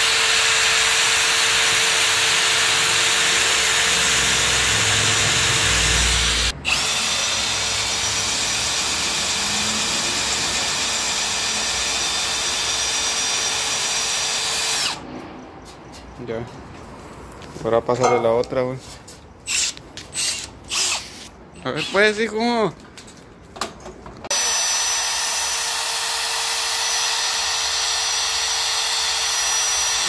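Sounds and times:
electric drill boring through steel: 0:00.0 - 0:15.0, 0:19.5 - 0:21.2, 0:24.3 - 0:30.0.

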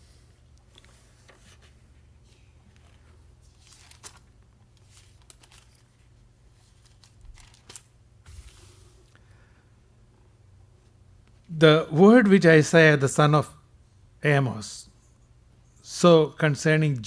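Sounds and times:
low steady hum: 0:00.0 - 0:17.0
page swishing: 0:00.7 - 0:06.0
pages rustling: 0:00.7 - 0:08.8.

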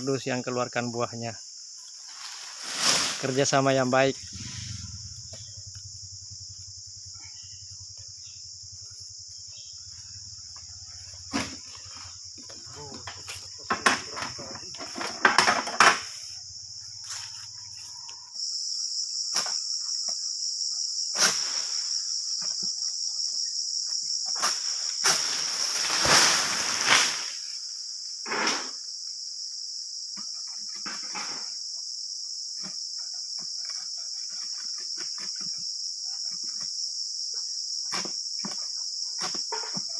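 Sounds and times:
insects droning: 0:00.0 - 0:39.9
knocks and rustles: 0:11.0 - 0:16.3.

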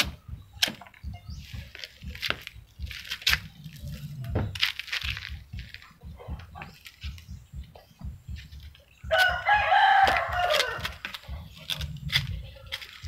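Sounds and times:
rooster crowing: 0:09.1 - 0:11.0.

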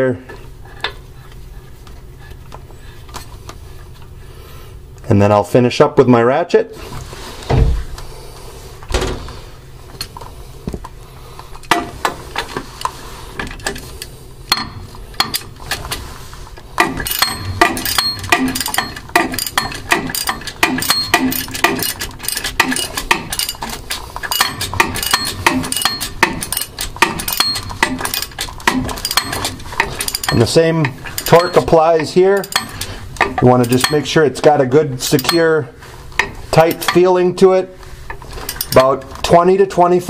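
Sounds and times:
socket ratchet clicking: 0:16.8 - 0:30.5
metallic clinks: 0:17.0 - 0:34.2, 0:35.0 - 0:35.6, 0:38.4 - 0:39.0.

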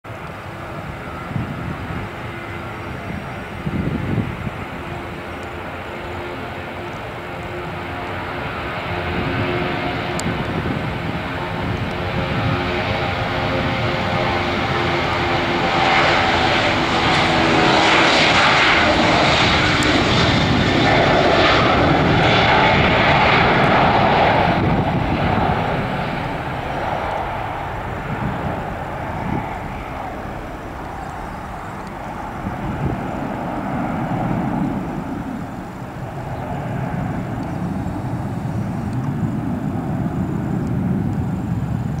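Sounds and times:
jet engines roaring at takeoff: 0:00.1 - 0:42.0.

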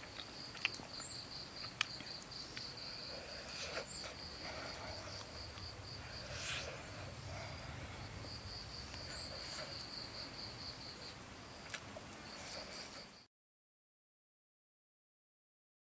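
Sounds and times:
rustle: 0:00.0 - 0:13.2
insect trilling: 0:00.9 - 0:11.6
low ambient rumble: 0:02.7 - 0:12.8.

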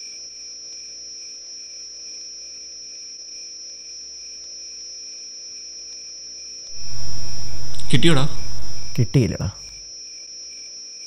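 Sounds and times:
crickets trilling: 0:06.8 - 0:09.0.

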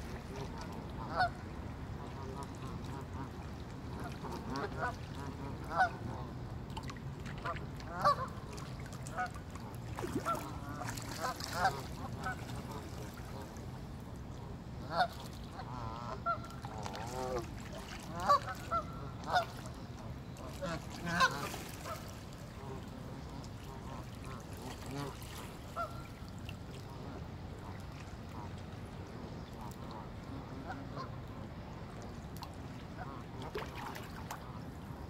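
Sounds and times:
geese honking: 0:20.5 - 0:22.0.

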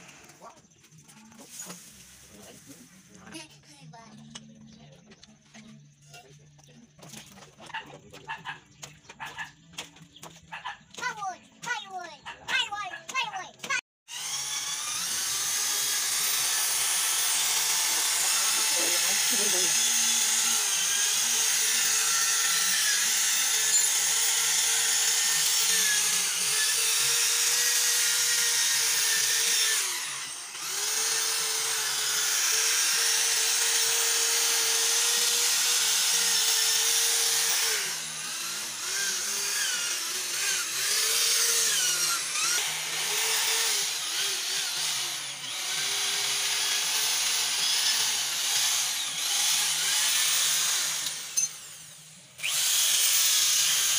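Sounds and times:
electric drill motor whine: 0:14.1 - 0:53.9.

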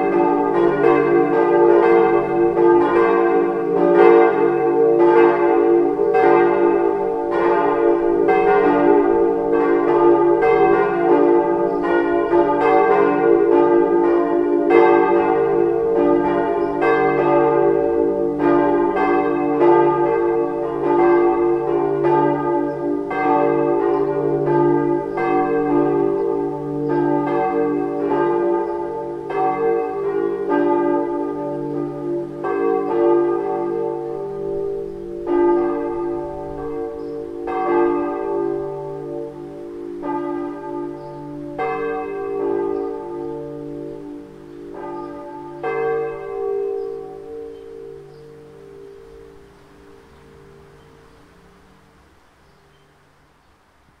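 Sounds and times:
church bells ringing: 0:00.0 - 0:53.0.

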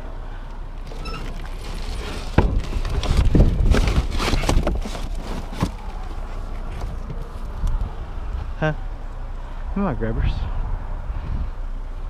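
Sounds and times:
cardboard and debris scraping: 0:00.8 - 0:07.5.

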